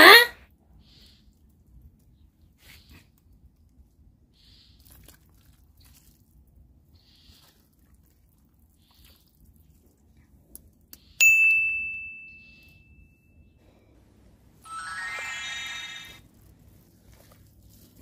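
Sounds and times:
bright ding sound effect: 14.7s - 16.1s.

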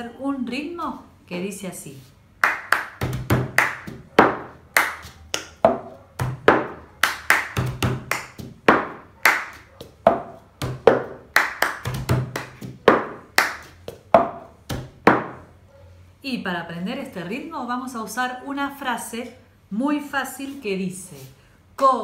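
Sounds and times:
hand claps: 2.4s - 15.4s
plastic cup striking tabletop: 5.6s - 6.8s, 10.1s - 11.2s, 14.1s - 15.4s.

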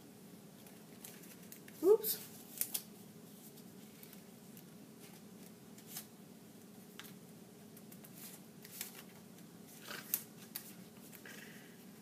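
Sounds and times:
low room hum: 0.0s - 12.0s
paper rustling: 0.6s - 6.1s, 7.8s - 11.3s.

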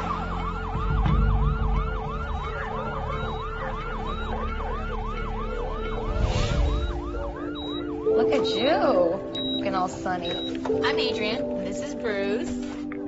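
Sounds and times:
siren yelping: 0.0s - 9.7s
low rumble: 5.7s - 8.2s.

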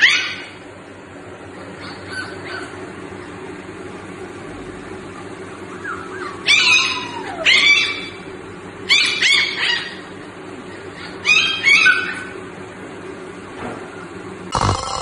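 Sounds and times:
puppies yipping and howling: 0.0s - 0.6s, 1.6s - 3.4s, 5.2s - 12.4s.

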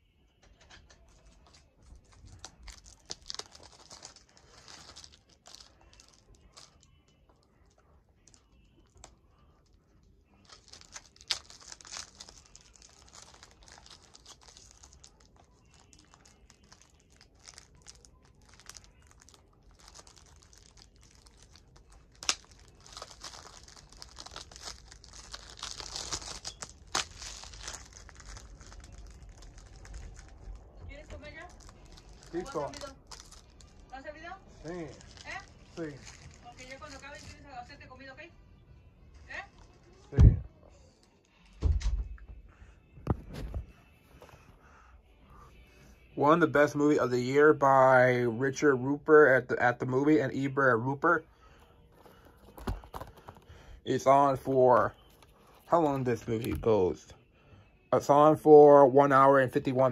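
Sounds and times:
plastic wrap crinkling and tearing: 1.1s - 37.4s, 50.0s - 56.9s.

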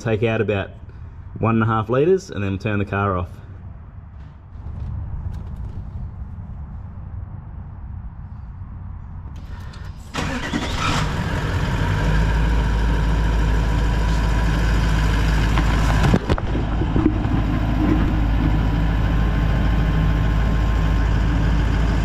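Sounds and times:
diesel engine starting and idling: 9.3s - 22.0s.

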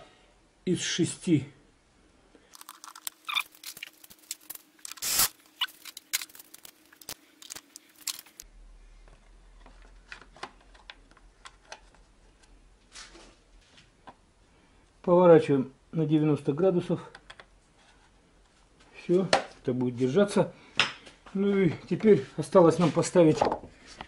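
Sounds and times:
hands handling parts and tools: 2.5s - 8.4s.

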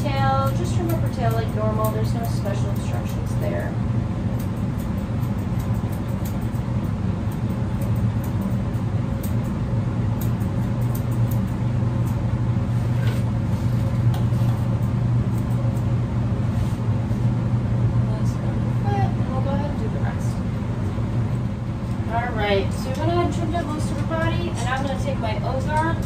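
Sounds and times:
shears snipping fur: 0.0s - 17.3s
low motor hum: 0.0s - 26.0s.

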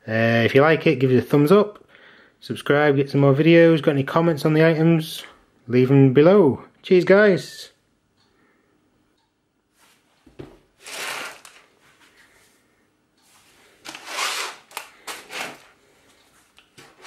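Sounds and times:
plastic bags crinkling: 10.8s - 11.7s, 13.8s - 15.8s.

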